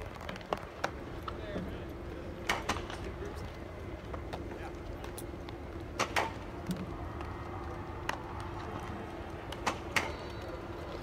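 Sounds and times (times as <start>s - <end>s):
low ballpark hum: 0.0s - 11.0s
baseballs hit and caught: 5.9s - 7.3s, 8.0s - 10.5s.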